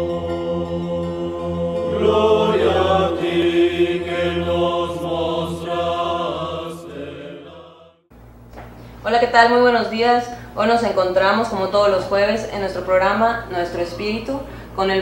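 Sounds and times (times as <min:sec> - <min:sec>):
low drone: 0:00.0 - 0:08.0
chant-like singing: 0:00.0 - 0:08.1.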